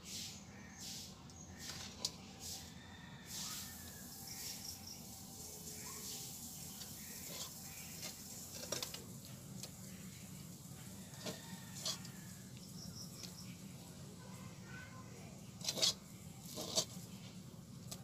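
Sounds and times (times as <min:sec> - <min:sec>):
spatula scraping metal pan: 0:07.0 - 0:08.8, 0:11.2 - 0:12.1, 0:15.6 - 0:17.0.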